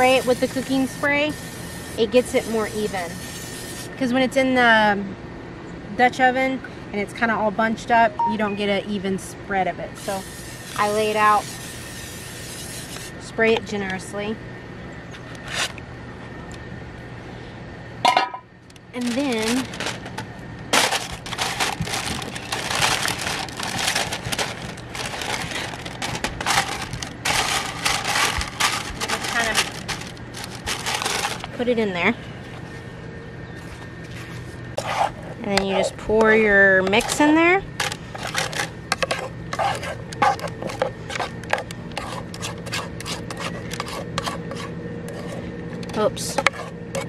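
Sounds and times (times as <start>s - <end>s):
faint steady hum: 0.0s - 47.0s
parchment liner crinkling: 19.0s - 31.6s
spoon scraping metal pot: 38.4s - 47.0s.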